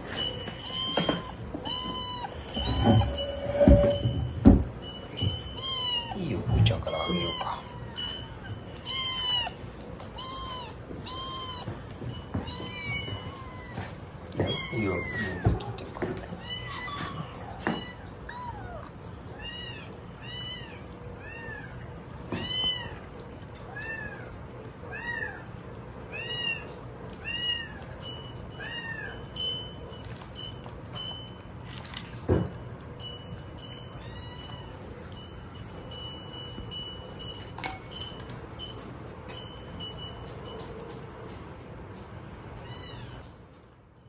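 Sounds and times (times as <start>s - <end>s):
faint high ringing tone: 0.0s - 13.9s, 27.4s - 42.7s.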